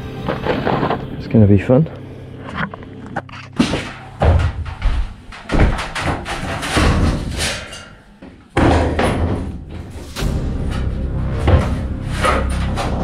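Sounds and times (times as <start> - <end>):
sheet metal clanking and ringing: 3.8 - 9.5.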